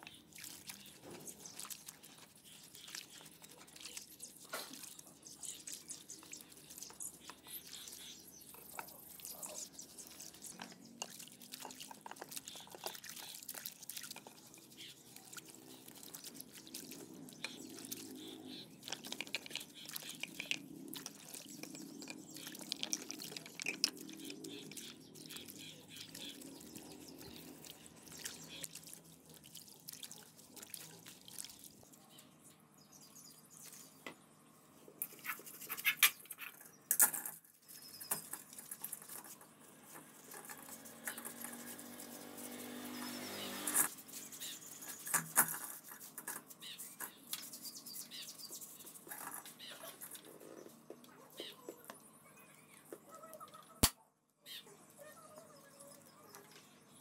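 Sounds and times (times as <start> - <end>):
water splashing: 0.0 - 32.0
brush scrubbing: 0.4 - 31.2, 38.4 - 50.7.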